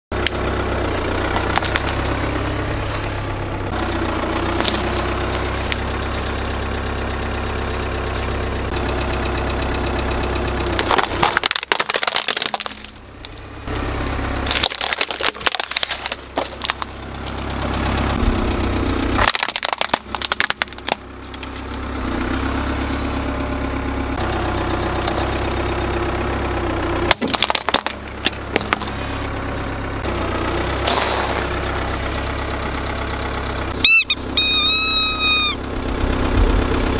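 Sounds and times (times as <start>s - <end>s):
car engine idling: 0.1s - 36.9s
tyre crushing plastic and shells: 1.3s - 2.3s, 4.6s - 5.0s, 10.7s - 13.4s, 14.3s - 18.4s, 19.1s - 21.8s, 27.1s - 29.2s.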